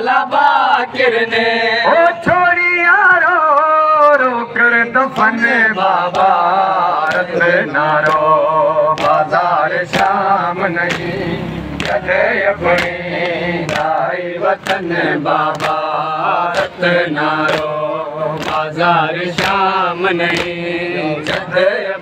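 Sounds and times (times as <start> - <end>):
men chanting in chorus: 0.0 - 22.0
chest-beating slaps: 7.0 - 10.2, 10.8 - 11.2, 12.7 - 14.0, 14.6 - 14.9, 15.5 - 15.9, 17.4 - 20.6.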